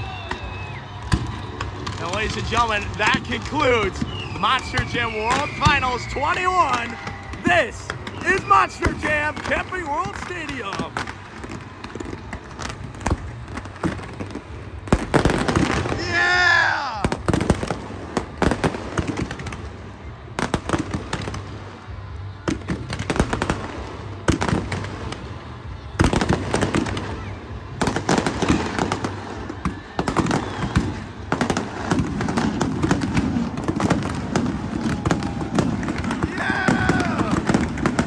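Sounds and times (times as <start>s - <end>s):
fireworks bangs and crackles: 0.0s - 38.0s.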